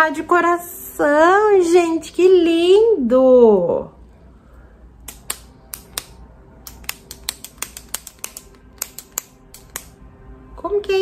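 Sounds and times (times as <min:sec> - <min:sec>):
lip gloss stick plastic clicks: 0:05.0 - 0:10.0.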